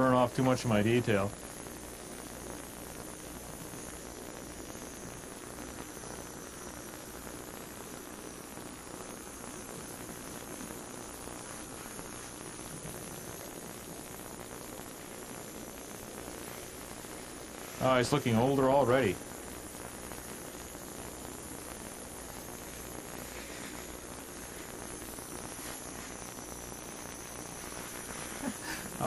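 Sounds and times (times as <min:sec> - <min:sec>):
gas torch hissing: 0:00.0 - 0:29.0.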